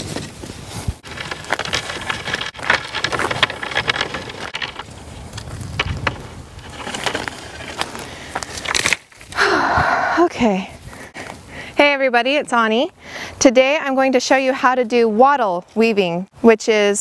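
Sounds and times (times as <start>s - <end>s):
bundle of wooden sticks rustling: 0.0s - 9.4s.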